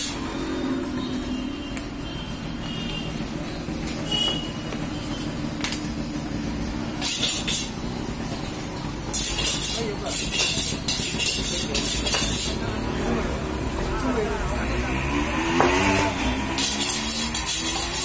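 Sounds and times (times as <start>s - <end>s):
knife rasping scrapes: 7.0s - 7.7s, 9.2s - 12.6s, 16.6s - 18.0s.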